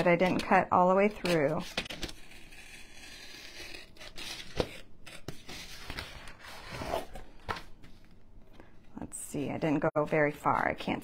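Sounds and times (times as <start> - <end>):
craft knife scraping foam board: 1.1 - 7.1.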